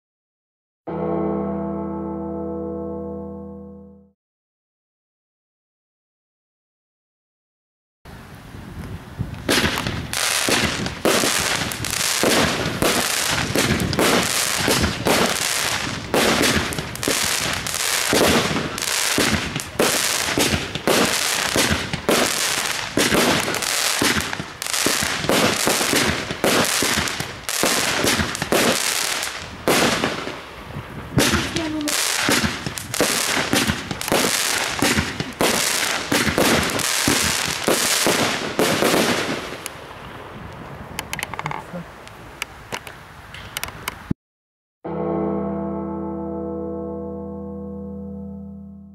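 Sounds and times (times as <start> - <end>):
firework aerial bursts: 9.4 - 39.9.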